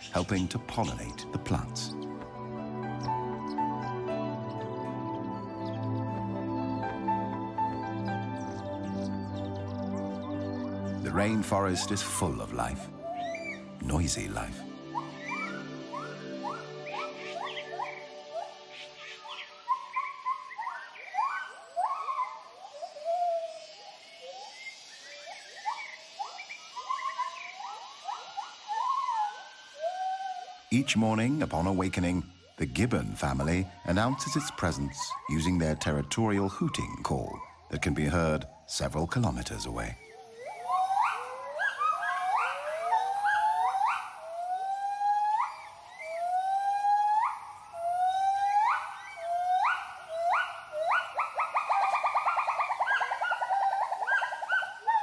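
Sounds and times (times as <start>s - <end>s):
gibbons whooping calls: 11.1s - 38.9s, 39.7s - 55.0s.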